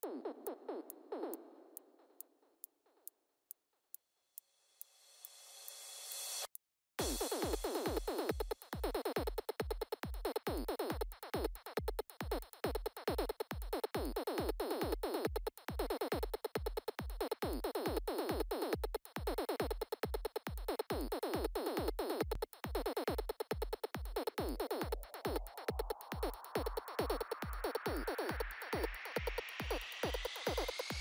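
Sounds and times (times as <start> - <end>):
electronic music with fast beat: 0.0 - 3.1, 7.0 - 31.0.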